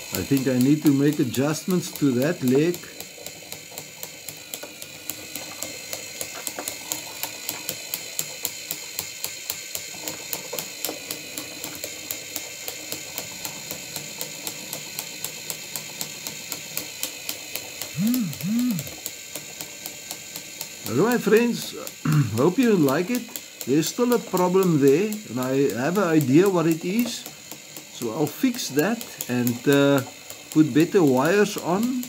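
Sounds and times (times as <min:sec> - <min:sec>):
small electric motor whining: 0:00.0 - 0:32.0
robot legs clicking: 0:17.8 - 0:19.0.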